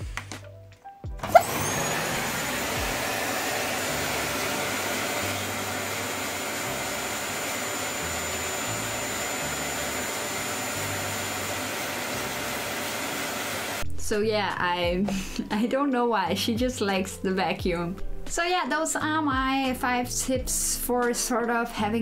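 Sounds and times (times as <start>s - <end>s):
vacuum cleaner motor whining: 1.1s - 13.9s.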